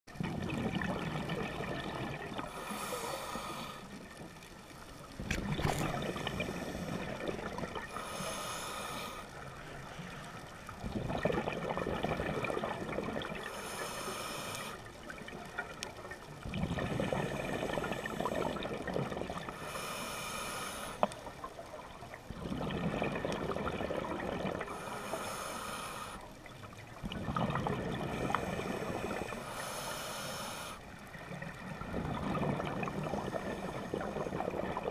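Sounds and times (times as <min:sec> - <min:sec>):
rush of exhaled bubbles: 0:00.1 - 0:02.8, 0:05.2 - 0:08.3, 0:10.7 - 0:13.7, 0:14.9 - 0:19.8, 0:21.6 - 0:25.4, 0:26.8 - 0:29.7, 0:31.1 - 0:34.9
regulator hissing inhale: 0:02.5 - 0:04.0, 0:07.9 - 0:09.5, 0:13.4 - 0:14.9, 0:19.5 - 0:21.3, 0:24.7 - 0:26.4, 0:28.1 - 0:31.0.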